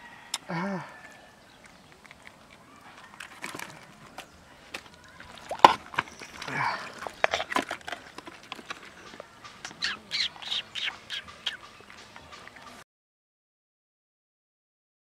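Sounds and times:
fish slapping in plastic bucket: 3.1s - 9.8s.

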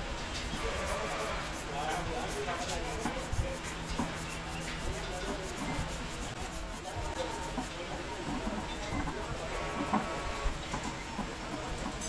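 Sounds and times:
brush rubbing spinning wood: 0.4s - 10.1s.

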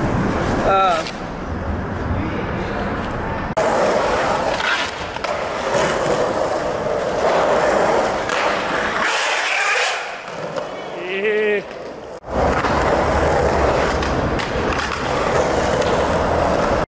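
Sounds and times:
skateboard wheels rolling on concrete: 0.0s - 16.9s
skateboard clacks: 3.6s - 16.8s.

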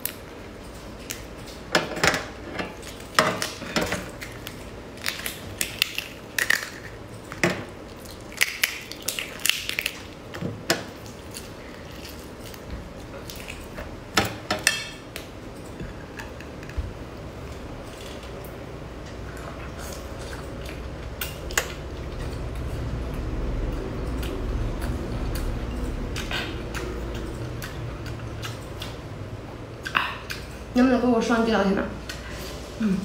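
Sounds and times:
prawn shell cracking: 2.9s - 10.2s.

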